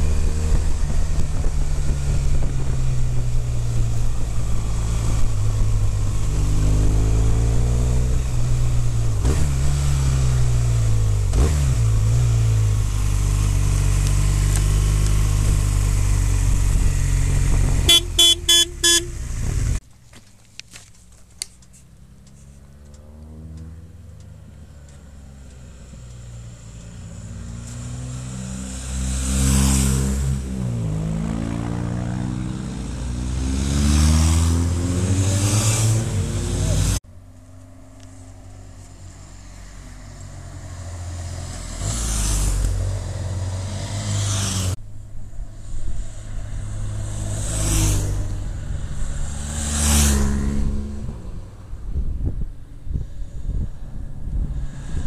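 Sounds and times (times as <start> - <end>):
heavy wind noise: 0.0 - 9.2, 15.3 - 18.2, 50.4 - 55.0
motorcycle passing by: 0.0 - 19.8, 22.5 - 55.0
motorcycle engine running: 10.4 - 19.8
short horn toots: 17.8 - 19.4.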